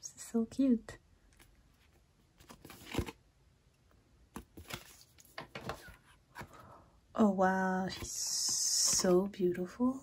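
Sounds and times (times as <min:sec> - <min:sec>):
paper cards rustling and sliding: 0:01.4 - 0:03.2, 0:04.4 - 0:06.7, 0:07.9 - 0:09.3.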